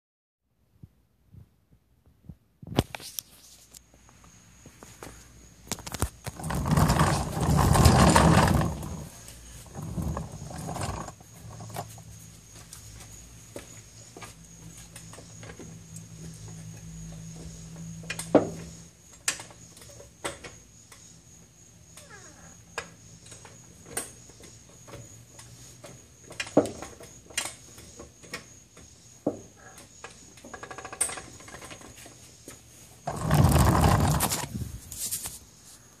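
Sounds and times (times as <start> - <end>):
loud rough noise: 6.3 - 11.8, 33.1 - 34.7.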